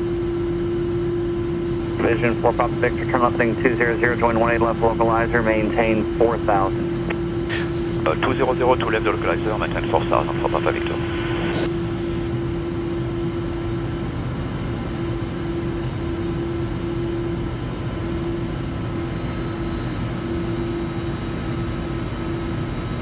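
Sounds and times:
jet engine drone and airflow: 0:00.0 - 0:23.0
constant steady tone: 0:07.5 - 0:23.0.

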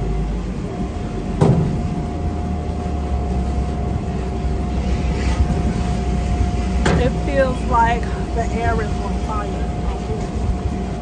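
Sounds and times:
car wash machinery drone: 0:00.0 - 0:11.0
single knock: 0:01.4 - 0:01.8.

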